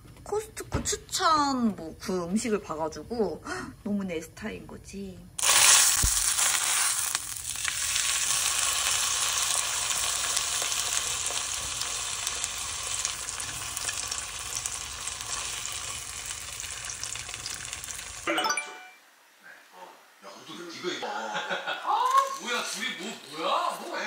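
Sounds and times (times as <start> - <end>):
food sizzling in hot oil: 5.4 - 18.3.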